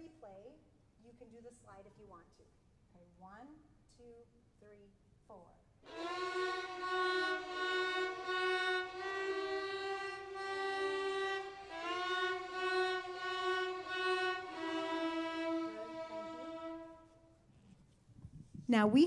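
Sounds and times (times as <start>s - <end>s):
violins and violas bowing in unison: 5.9s - 17.3s.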